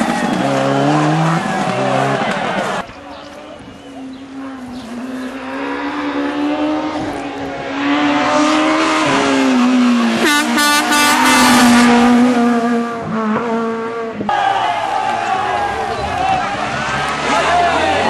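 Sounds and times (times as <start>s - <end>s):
rally car engine revving: 0.0s - 2.9s, 3.8s - 18.0s.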